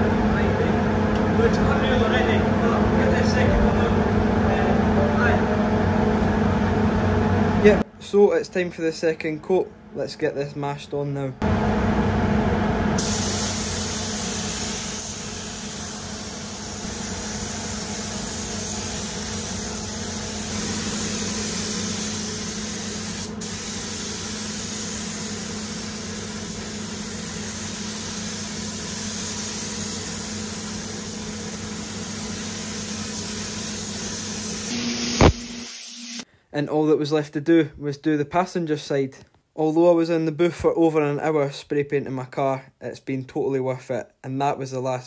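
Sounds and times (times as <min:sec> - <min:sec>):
spray gun hissing: 0:13.0 - 0:36.2.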